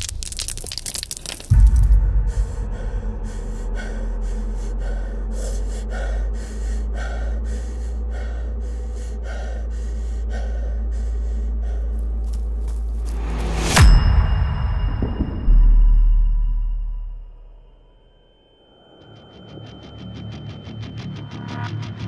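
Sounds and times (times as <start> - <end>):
steady deep drone: 1.5 - 13.8
man panting while running: 2.4 - 13.0
deep boom: 13.8 - 17.2.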